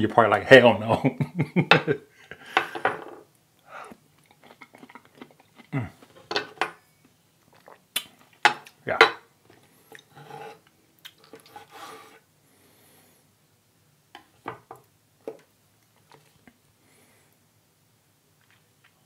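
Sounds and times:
scraping and rubbing of utensils: 10.1 - 10.7, 11.4 - 12.2.

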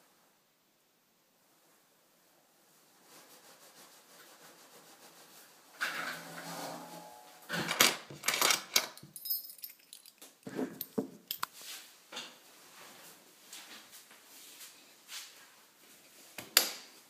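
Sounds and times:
rustling and knocking handling noises: 7.6 - 11.6.

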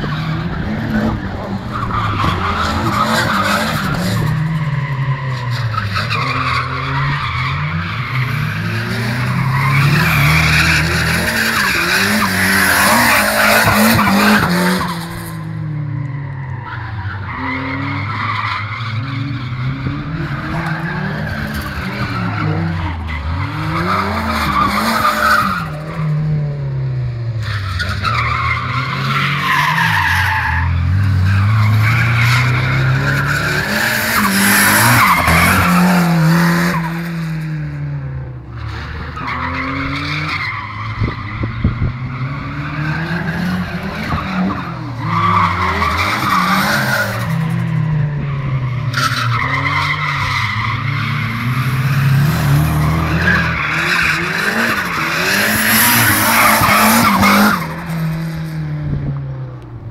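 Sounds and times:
car engine revving: 17.3 - 59.9
tyres squealing on tarmac: 27.4 - 36.2.

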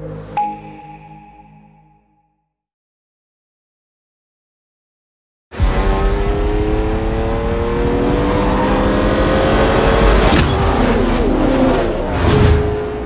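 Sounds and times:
racing car engine accelerating: 5.6 - 13.0.

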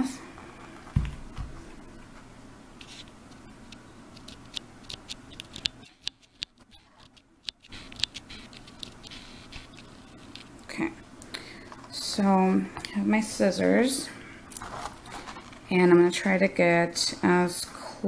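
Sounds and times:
cord scratching and rustling: 2.8 - 3.2, 4.2 - 10.6, 14.6 - 15.7.

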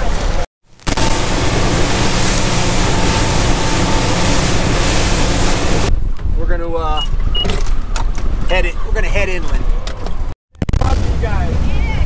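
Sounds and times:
rushing wind and water: 0.0 - 10.3
boat engine drone: 0.2 - 5.9.

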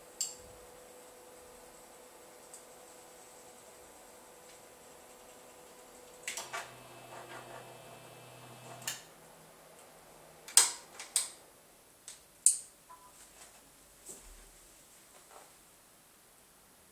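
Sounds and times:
stepper motors humming: 6.3 - 9.1.

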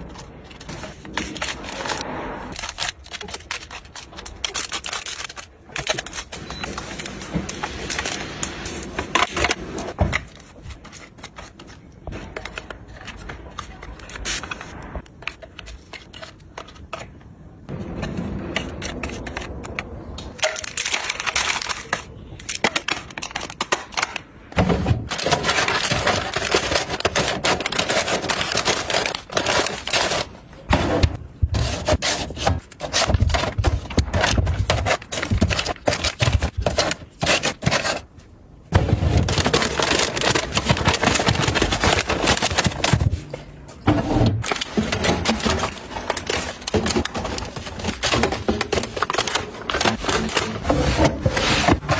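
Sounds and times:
plastic packets crinkling: 0.0 - 9.3, 18.5 - 24.3, 25.0 - 30.7, 31.5 - 43.8, 44.4 - 51.9
plastic bins clicking and knocking: 2.6 - 51.9.

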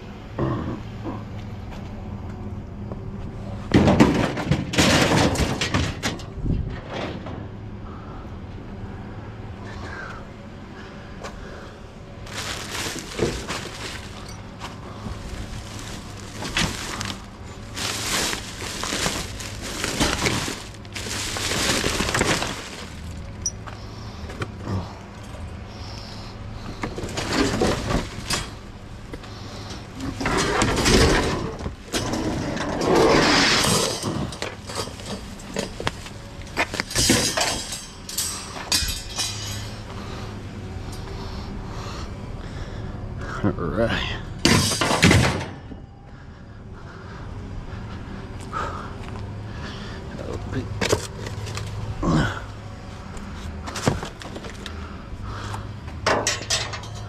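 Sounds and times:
metal rack and cardboard clattering: 3.7 - 7.5, 12.3 - 23.5, 26.9 - 28.7, 30.0 - 39.9, 44.4 - 45.7, 56.0 - 57.0
steady low hum: 5.4 - 32.7, 33.9 - 44.5, 45.5 - 57.0
trash bags rustling: 12.2 - 23.7, 26.8 - 39.9.

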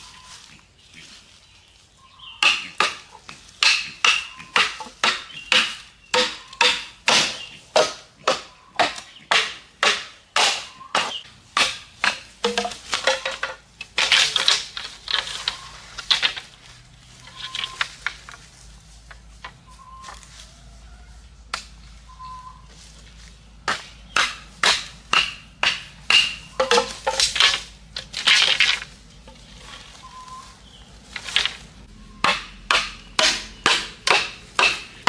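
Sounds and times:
machete chopping bamboo: 2.4 - 16.6, 23.6 - 28.9, 32.2 - 35.0.

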